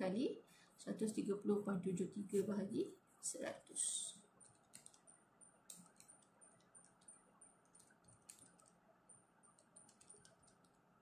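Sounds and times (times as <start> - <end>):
calculator keys clicking: 4.4 - 5.1, 5.7 - 8.8, 9.4 - 10.9.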